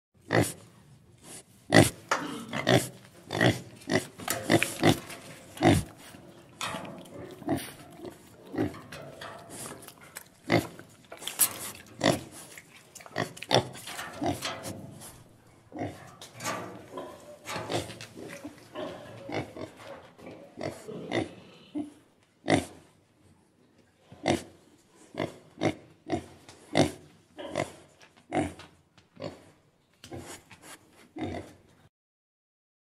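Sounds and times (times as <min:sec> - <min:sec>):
pig grunting: 0:01.7 - 0:15.0, 0:15.7 - 0:22.7, 0:25.2 - 0:28.6.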